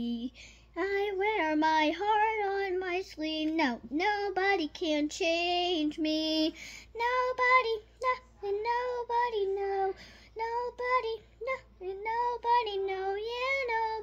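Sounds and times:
girl singing: 0:00.0 - 0:14.0.

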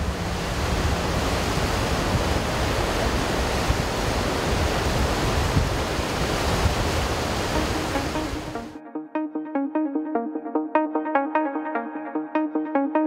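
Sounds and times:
river rapids rushing: 0:00.0 - 0:08.7.

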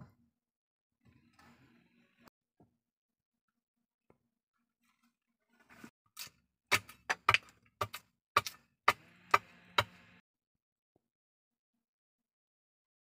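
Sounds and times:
billhook chopping wooden pole: 0:06.2 - 0:10.0.

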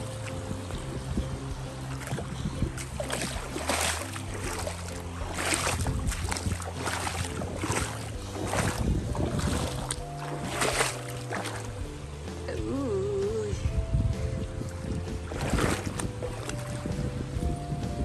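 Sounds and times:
background music: 0:00.0 - 0:18.0
creek rushing and splashing: 0:00.0 - 0:18.0.

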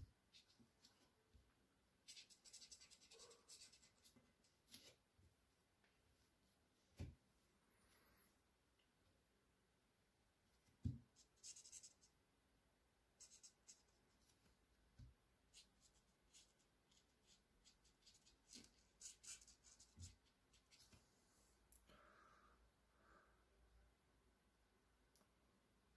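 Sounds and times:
felt-tip pen scratching on paper: 0:02.1 - 0:04.1.

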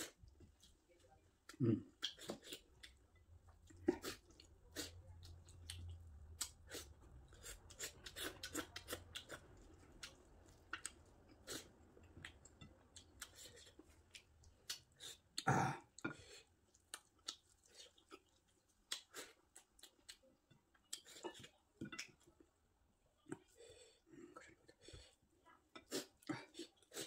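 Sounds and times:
chewing and wet mouth smacks: 0:01.4 - 0:16.1, 0:16.7 - 0:22.3.

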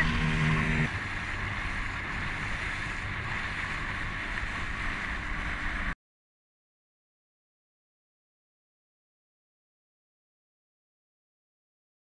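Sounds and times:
water lapping: 0:00.0 - 0:06.0.

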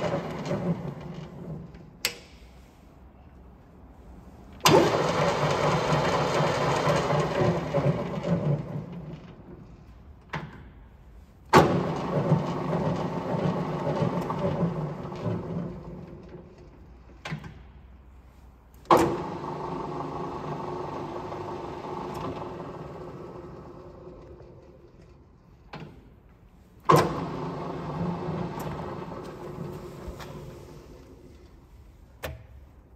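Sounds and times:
lathe spindle and gearing whirring: 0:00.0 - 0:01.8, 0:04.6 - 0:09.5, 0:11.6 - 0:16.4, 0:18.9 - 0:25.4, 0:26.9 - 0:31.4
lathe starting clunk: 0:00.0 - 0:01.9, 0:04.6 - 0:09.5, 0:11.5 - 0:17.6, 0:18.8 - 0:25.2, 0:26.8 - 0:31.3.

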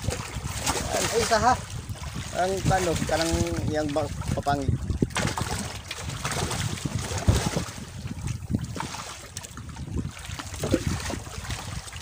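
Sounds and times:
fish thrashing and splashing: 0:00.0 - 0:12.0
knocks against boat: 0:05.1 - 0:05.7.

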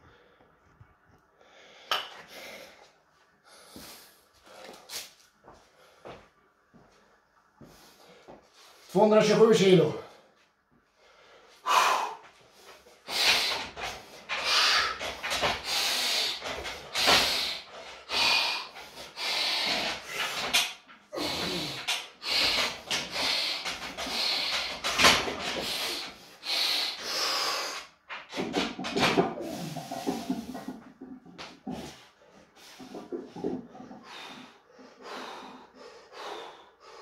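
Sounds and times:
forceful hissing breaths: 0:10.9 - 0:28.6, 0:29.4 - 0:30.8, 0:34.0 - 0:37.0.

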